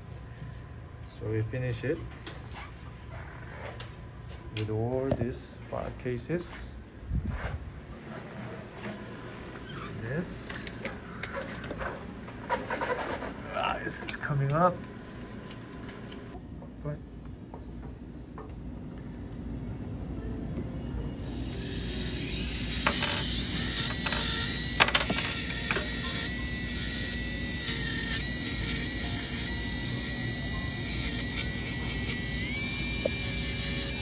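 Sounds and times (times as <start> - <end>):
dental handpiece whining: 21.2 - 34.0.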